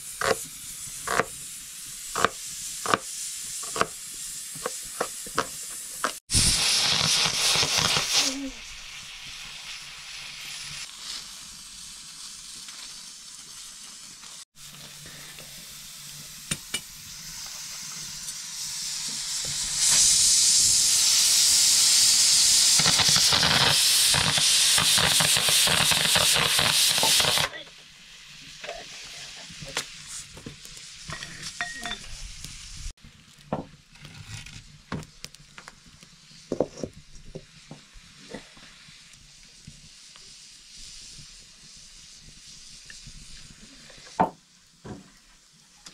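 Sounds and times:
pressure cooker hissing steam: 0.0s - 33.0s, 36.1s - 45.7s
wood fire crackling: 0.0s - 45.9s.

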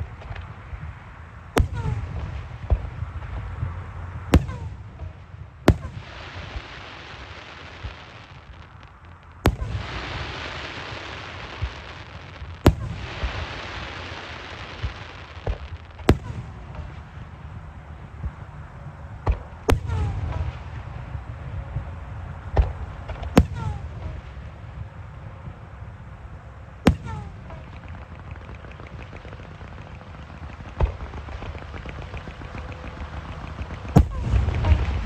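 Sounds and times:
fireworks booming: 1.6s - 17.6s, 19.2s - 25.6s, 26.8s - 35.0s
fireworks crackling hiss: 5.7s - 17.2s, 26.9s - 35.0s
low rumble: 15.8s - 35.0s.

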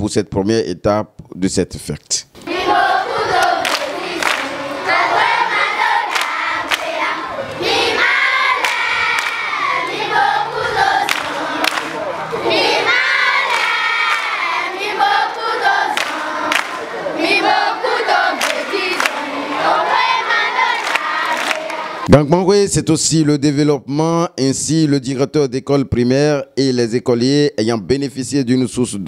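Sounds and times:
crowd singing and chanting: 2.4s - 22.1s.

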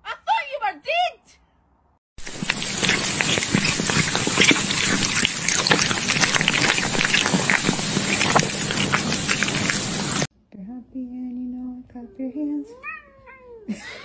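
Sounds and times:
meat sizzling on a grill: 2.2s - 10.3s.

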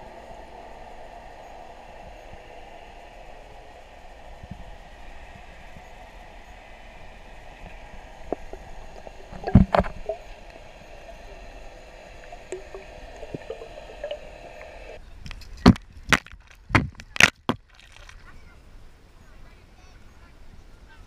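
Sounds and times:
muffled underwater hiss: 0.0s - 15.7s
water spray hitting camera: 8.3s - 11.6s, 12.2s - 15.8s.

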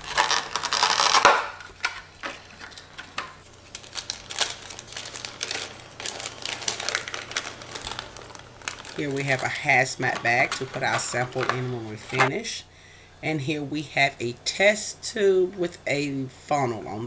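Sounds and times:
plastic packaging crinkling: 0.0s - 12.4s.

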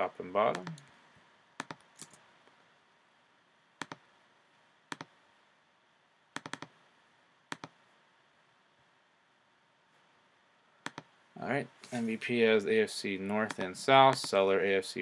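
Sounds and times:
computer mouse clicking: 0.5s - 0.9s, 1.6s - 2.2s, 3.8s - 4.0s, 4.9s - 5.1s, 6.3s - 6.8s, 7.5s - 7.8s, 10.8s - 11.1s, 13.4s - 14.4s.

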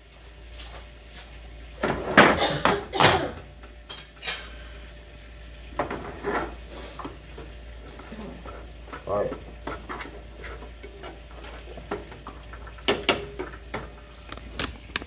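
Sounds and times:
dishes and cookware clattering: 1.8s - 4.5s, 5.8s - 6.6s.

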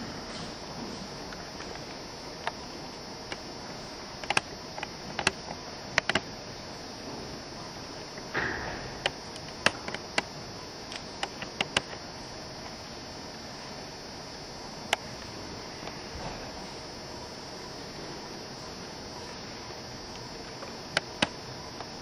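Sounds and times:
faint high whine: 0.0s - 22.0s
room noise hum: 0.0s - 22.0s
sharp clicks and taps: 4.2s - 6.3s, 10.9s - 12.0s.

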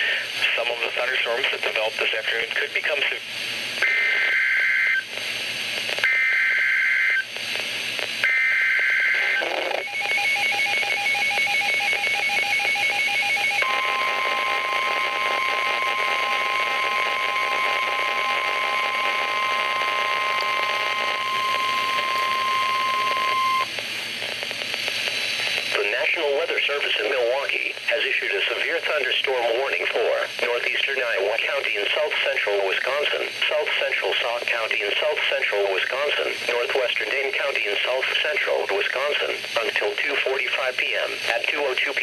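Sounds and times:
steady warning alarm tone: 8.2s - 23.7s.

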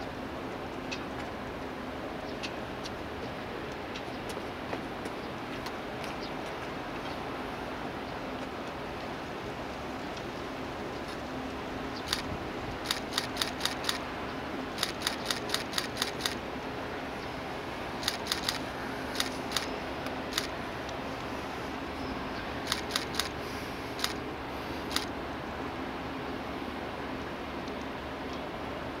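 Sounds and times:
camera shutters clicking: 12.1s - 14.0s, 14.8s - 16.4s, 18.0s - 19.7s, 20.3s - 20.5s, 22.7s - 23.4s, 24.0s - 24.2s, 24.9s - 25.1s.

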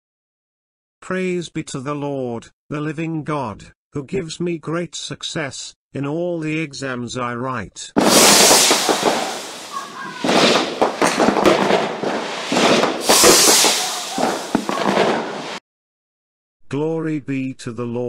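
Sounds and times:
fireworks crackling and popping: 8.0s - 15.6s.

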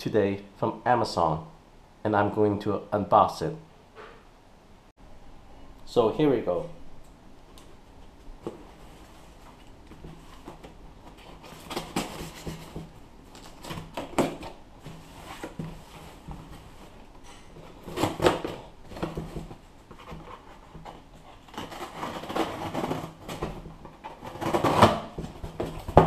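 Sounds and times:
cardboard box rustling and scraping: 8.4s - 26.0s
scissors cutting packing tape: 24.2s - 25.2s.

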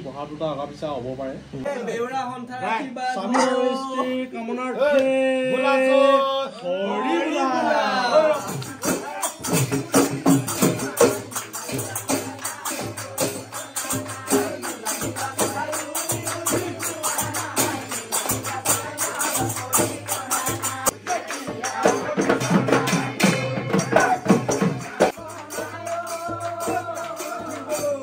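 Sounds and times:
group singing: 3.1s - 28.0s
drums beating fast: 8.2s - 28.0s
jingling hand cymbals: 8.3s - 28.0s.

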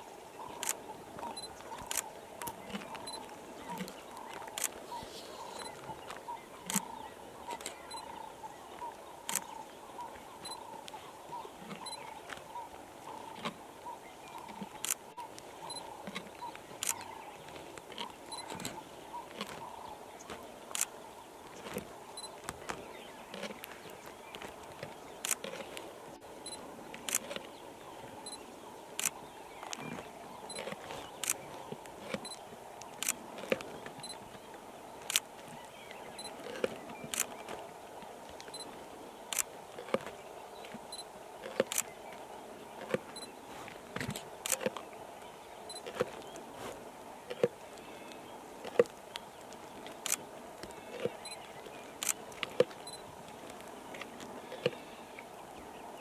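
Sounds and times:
lions chewing and tearing: 0.4s - 26.0s, 26.7s - 28.2s, 29.0s - 55.1s
camera shutters clicking: 0.6s - 0.8s, 1.8s - 2.1s, 4.6s - 4.8s, 16.8s - 17.0s, 20.7s - 20.9s, 25.2s - 25.5s, 31.2s - 31.4s, 35.1s - 35.3s, 36.6s - 37.4s, 41.6s - 41.9s, 50.0s - 50.2s, 52.0s - 52.7s.

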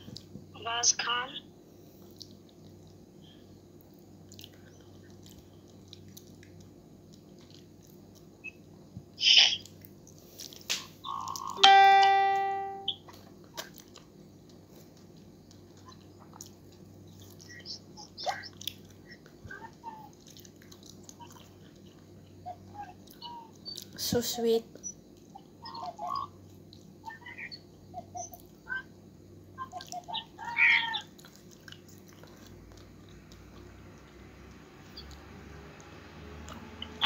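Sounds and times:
mouth sounds of eating: 4.0s - 8.3s, 14.8s - 24.1s, 29.6s - 34.2s
electronic chime: 11.6s - 12.9s.

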